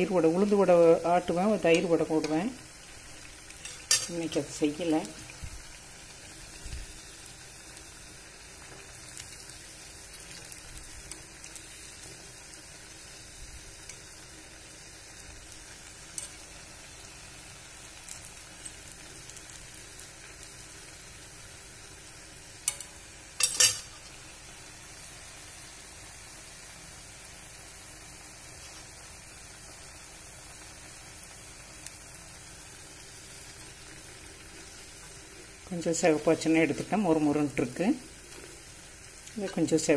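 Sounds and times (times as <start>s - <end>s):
batter sizzling in oil: 0.0s - 39.9s
metal skewer clinking on pan: 3.6s - 4.4s, 16.1s - 16.6s, 22.6s - 24.0s.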